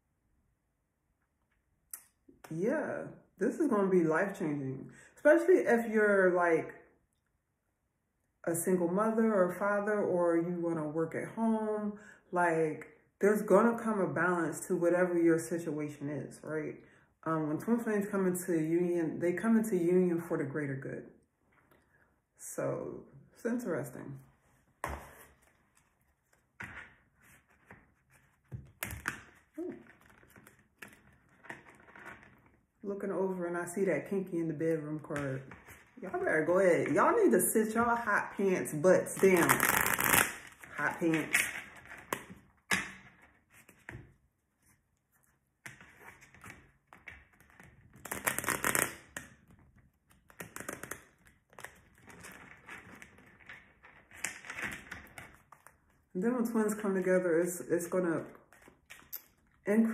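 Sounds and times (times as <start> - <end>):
cards being shuffled: 24.8 - 32.4, 39.4 - 42.4, 45.7 - 53.2
cards shuffling: 39.4 - 44.0, 45.7 - 49.3, 50.1 - 53.2.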